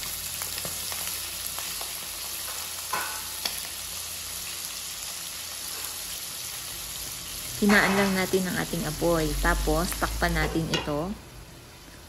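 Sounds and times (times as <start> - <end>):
loud hiss of food added to pan: 0.0 - 8.4
livers sizzling in hot oil: 0.0 - 12.0.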